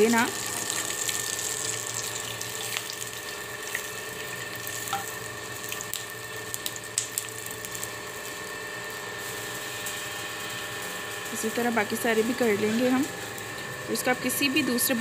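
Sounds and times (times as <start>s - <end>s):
chicken sizzling in oil: 0.0s - 13.9s.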